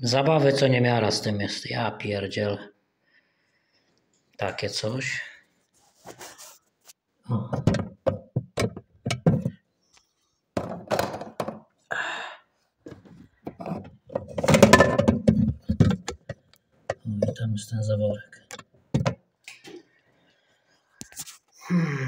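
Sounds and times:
knocks on plastic and metal: 7.5 - 9.6, 10.6 - 11.6, 12.9 - 17.4, 18.5 - 19.2.

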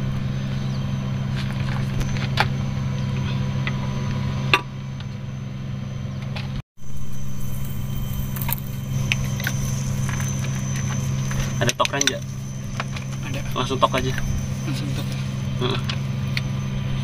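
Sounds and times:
low engine hum: 0.0 - 17.0.

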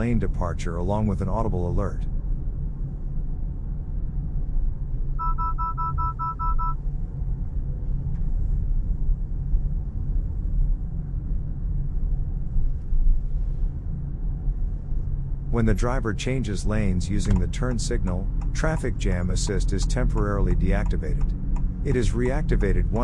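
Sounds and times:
lane departure warning beeps: 5.2 - 6.8
car cabin rumble: 12.1 - 23.0.

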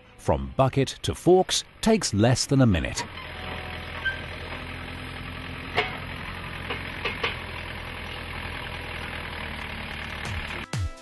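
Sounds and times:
diesel engine idling: 0.2 - 10.7
sharp metal knocks: 5.7 - 6.1.

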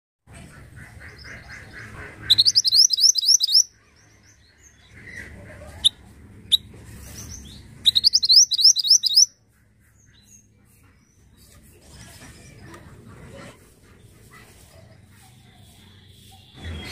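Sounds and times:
bird singing high rising notes: 2.3 - 3.7, 7.3 - 9.3.

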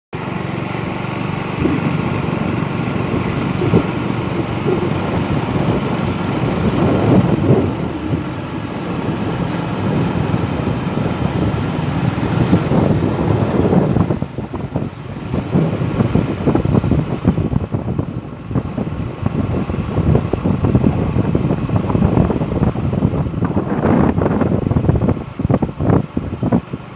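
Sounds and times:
wind buffeting microphone: 0.2 - 26.9.

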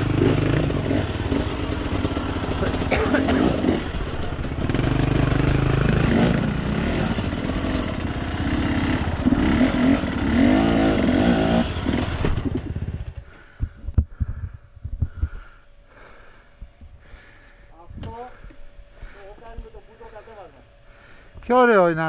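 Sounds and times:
dirt bike engine revving: 0.0 - 13.7.

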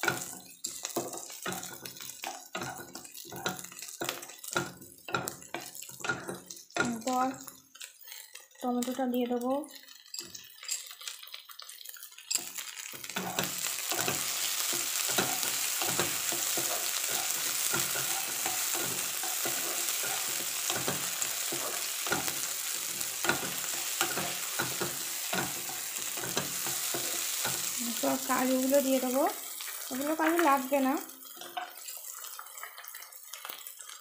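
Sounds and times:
spatula scraping a pan: 0.0 - 7.0, 7.8 - 8.4, 11.8 - 28.4
vegetables sizzling in hot oil: 0.0 - 34.0.

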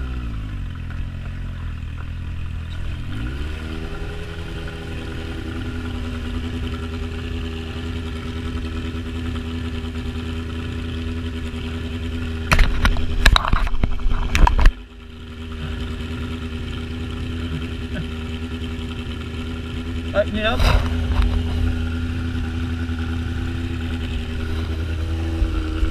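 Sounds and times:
motorcycle engine idling: 0.0 - 25.9
loud knocks and crackles: 12.5 - 14.8.

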